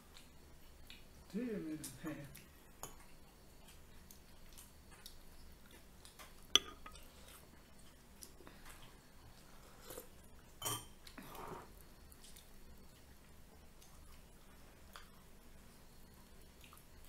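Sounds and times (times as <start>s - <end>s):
soft chewing: 0.0s - 17.0s
metal spoon clinking on bowl: 6.6s - 7.0s.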